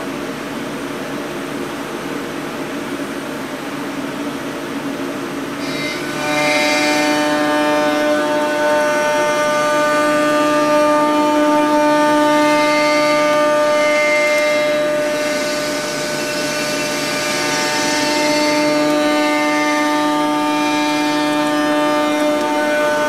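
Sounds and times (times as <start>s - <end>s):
milling machine whine: 5.2s - 23.0s
hiss: 5.6s - 23.0s.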